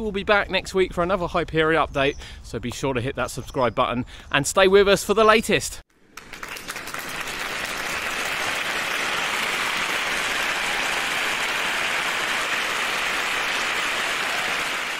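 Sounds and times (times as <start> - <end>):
crowd clapping: 6.0 - 14.9.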